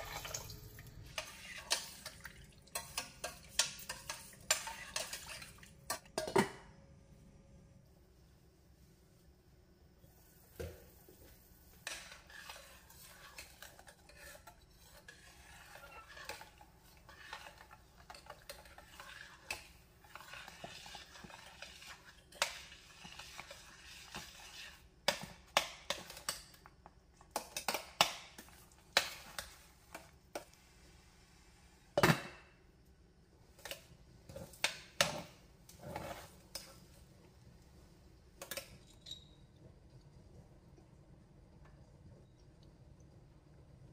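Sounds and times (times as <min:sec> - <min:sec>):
spoon scraping pan: 0:00.0 - 0:06.3, 0:11.3 - 0:26.6, 0:35.7 - 0:37.0.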